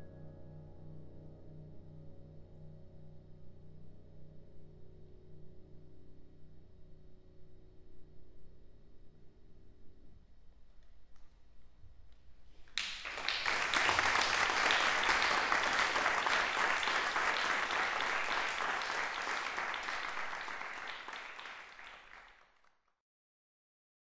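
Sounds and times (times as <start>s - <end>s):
audience applause: 12.8s - 22.6s.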